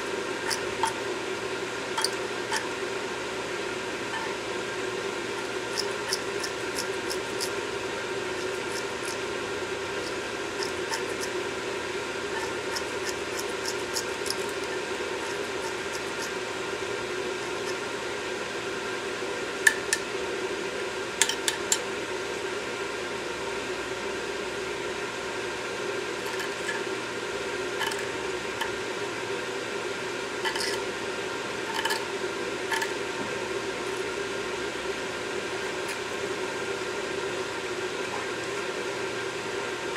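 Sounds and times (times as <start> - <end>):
steady low hum: 0.0 - 39.9
metal pick scraping and tapping: 0.4 - 1.1, 2.0 - 2.7, 5.3 - 7.6, 8.3 - 9.2, 10.0 - 11.4, 12.3 - 16.4, 27.8 - 28.7, 30.4 - 30.8.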